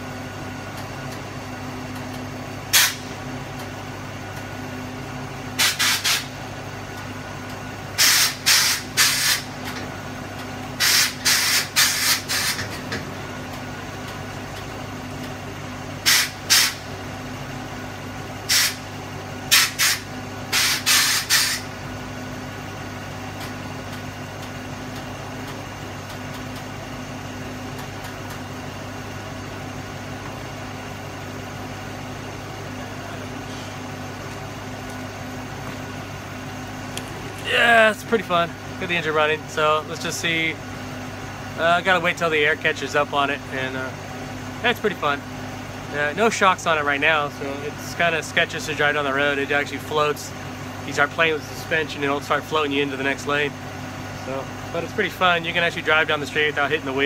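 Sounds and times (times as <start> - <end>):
bus engine idling: 0.0 - 57.0
air suspension valves hissing: 2.7 - 3.2, 5.6 - 6.4, 8.0 - 9.8, 10.8 - 12.8, 16.0 - 16.9, 18.4 - 18.9, 19.5 - 21.8.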